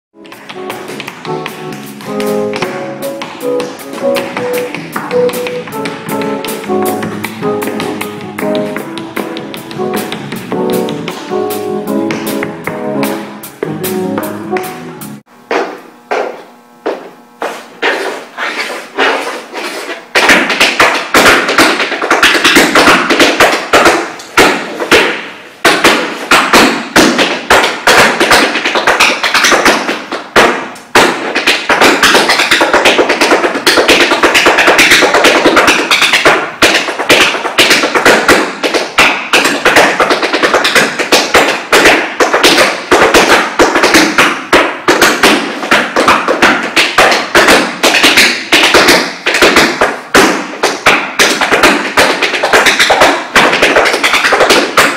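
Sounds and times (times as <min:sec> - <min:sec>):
tap shoes on wooden floor: 0:00.2 - 0:12.8, 0:15.5 - 0:54.9.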